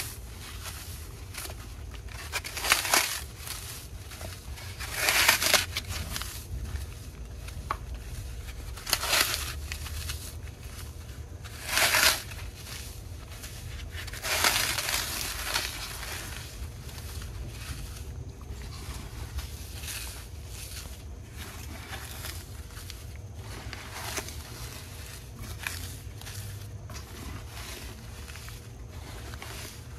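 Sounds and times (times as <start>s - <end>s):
floral foam crunching: 0.0s - 29.9s
foam crumbling softly: 0.0s - 29.9s.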